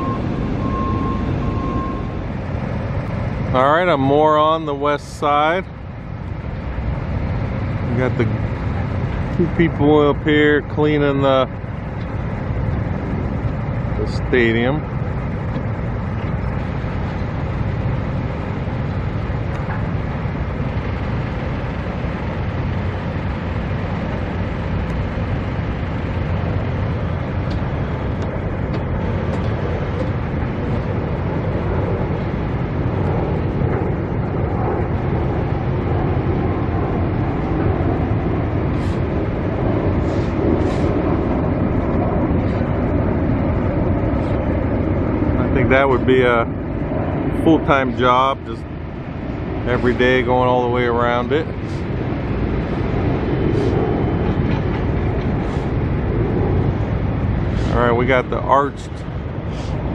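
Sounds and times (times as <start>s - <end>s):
road traffic rumble: 0.0s - 59.9s.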